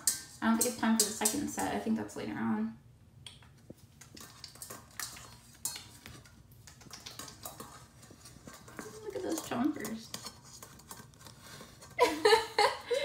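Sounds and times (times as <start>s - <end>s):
claws scraping metal bowl: 0.0s - 1.8s, 3.9s - 12.0s.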